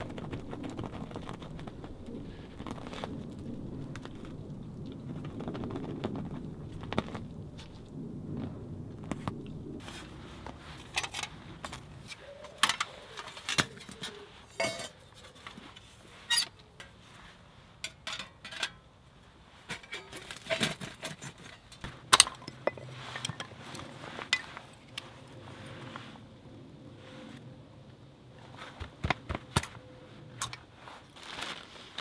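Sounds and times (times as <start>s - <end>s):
metal panels clinking and clanking: 12.0s - 17.0s, 17.8s - 18.9s, 19.7s - 23.5s.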